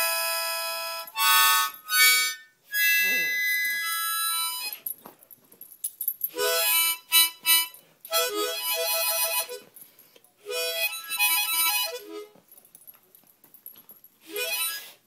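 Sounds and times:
harmonica chords: 0.0s - 4.9s, 6.3s - 9.8s, 10.4s - 12.4s, 14.2s - 15.0s.

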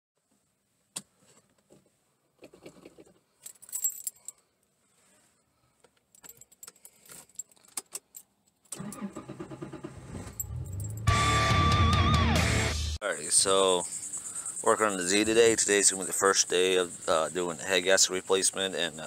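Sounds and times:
metallic jingling: 3.4s - 4.5s, 10.3s - 11.2s.

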